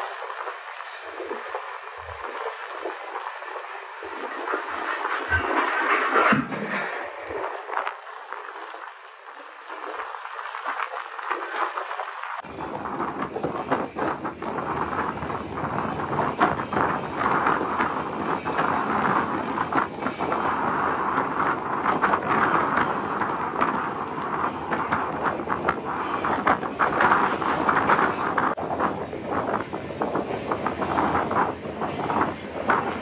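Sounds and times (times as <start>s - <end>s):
train wagons rattling on rails: 0.0s - 33.0s
knocks and clanks: 4.4s - 7.9s.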